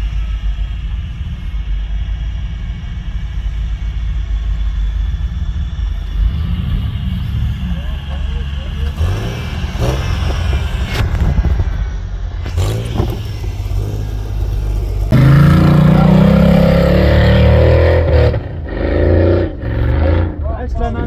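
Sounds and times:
truck engine running: 0.0 - 21.0
engine revving hard: 6.0 - 11.4, 12.4 - 21.0.

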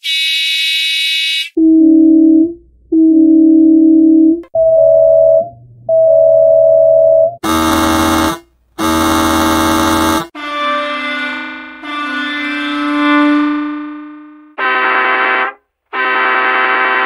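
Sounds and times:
bus horn blasts: 7.4 - 17.0.

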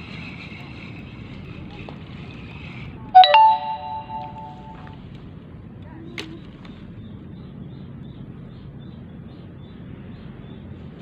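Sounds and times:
faint high chirps: 3.2 - 4.9.

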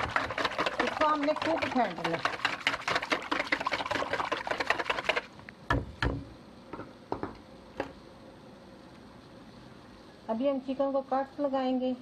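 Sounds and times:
whisking in a bowl: 0.0 - 5.3.

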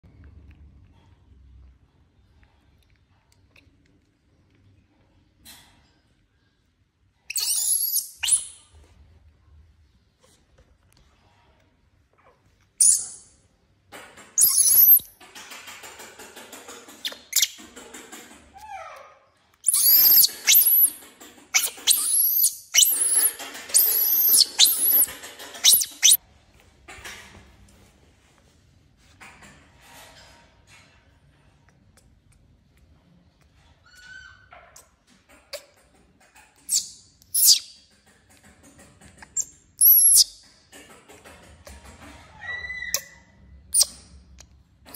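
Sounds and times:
infant monkey squealing: 7.3 - 8.5, 14.4 - 15.0, 18.9 - 21.0, 21.6 - 26.2, 36.7 - 37.7, 39.8 - 40.3.

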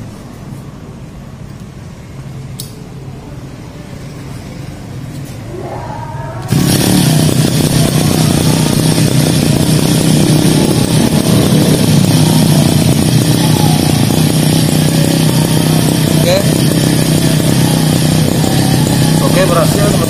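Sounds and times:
small petrol engine running: 6.5 - 20.0.

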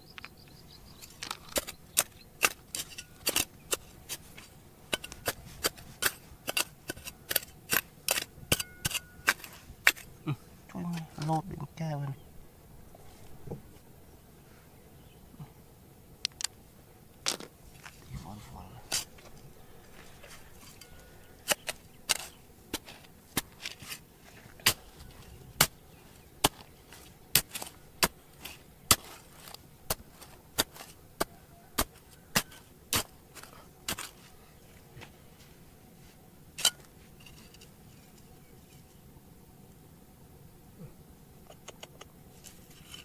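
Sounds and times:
hand tool striking rock: 1.0 - 10.1, 20.7 - 24.0, 24.6 - 25.8, 26.4 - 34.2, 36.6 - 37.6.

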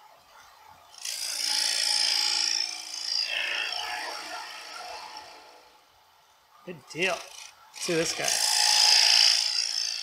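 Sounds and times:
gouge cutting wood on lathe: 7.2 - 10.0.

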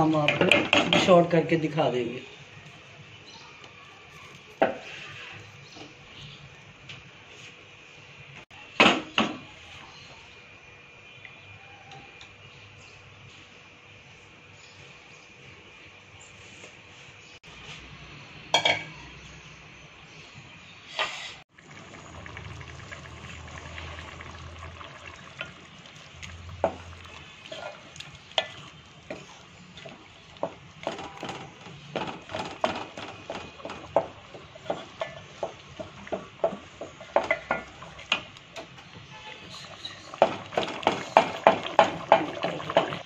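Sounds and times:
wooden spoon stirring in a pot: 22.7 - 43.0
spoon knocking against metal pot: 30.4 - 38.2, 40.2 - 43.0.

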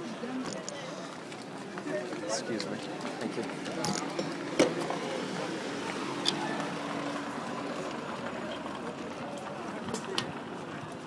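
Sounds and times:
street noise: 0.0 - 11.0.

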